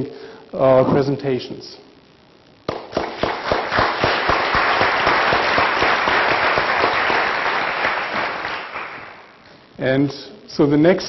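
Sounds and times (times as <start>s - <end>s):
audience applauding: 2.7s - 9.4s.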